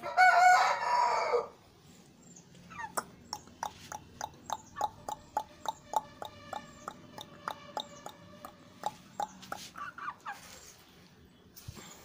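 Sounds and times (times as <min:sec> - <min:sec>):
chicken clucking: 0:02.6 - 0:11.1.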